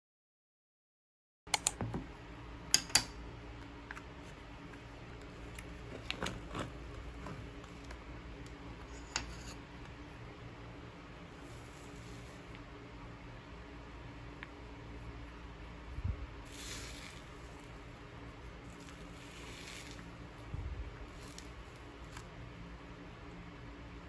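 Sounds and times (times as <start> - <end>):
steady low hum: 1.6 - 24.0
wooden spoon scraping ice cream: 5.2 - 8.0, 8.8 - 9.7, 16.5 - 22.3.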